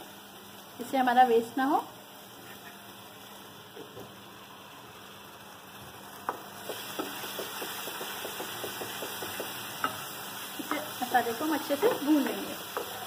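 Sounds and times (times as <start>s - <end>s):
masala sizzling in a pan: 0.0s - 13.0s
wooden spatula scraping a pan: 2.4s - 2.8s.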